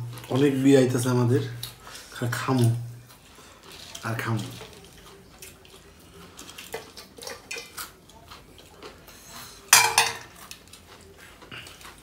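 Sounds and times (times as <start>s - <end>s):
metal bowl clanking down: 9.7s - 10.3s
metal bowl and plate clinking: 9.7s - 10.4s.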